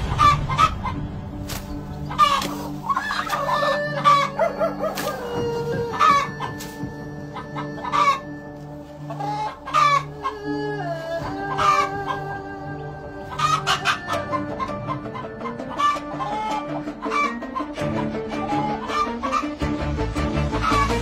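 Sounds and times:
chicken clucking and squawking: 0.0s - 19.8s, 20.5s - 21.0s.

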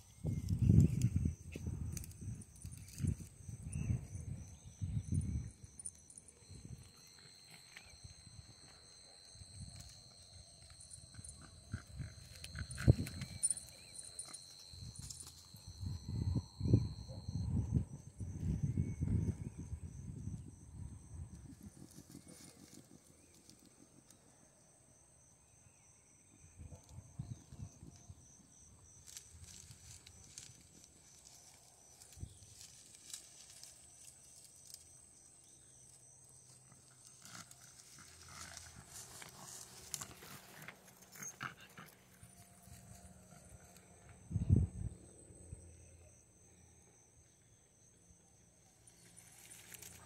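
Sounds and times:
high insect trill: 0.0s - 50.0s
rustling through dry brush: 29.0s - 34.9s, 36.9s - 41.2s.

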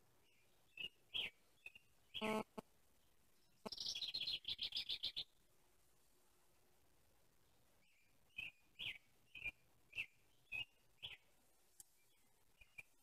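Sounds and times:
small bird chirping and twittering: 0.2s - 2.4s, 3.0s - 5.4s, 7.8s - 13.0s.

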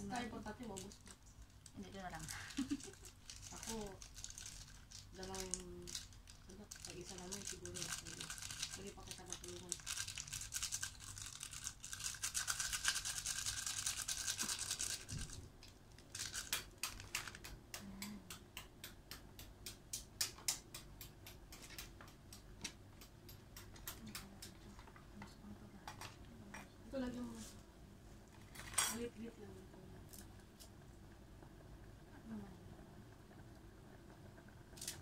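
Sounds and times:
plastic sachet crinkling: 0.4s - 17.5s.

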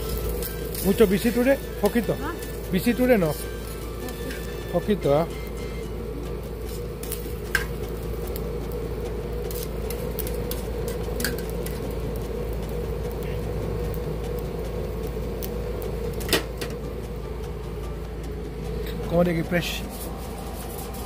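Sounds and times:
steady mechanical hum: 0.0s - 21.0s
metal tongs clicking on griddle: 6.7s - 8.4s, 9.5s - 12.0s.

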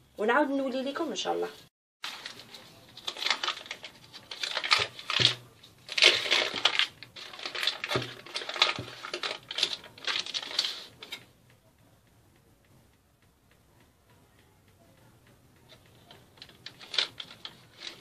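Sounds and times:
paper wrapping rustling: 2.0s - 11.2s, 16.0s - 18.0s.

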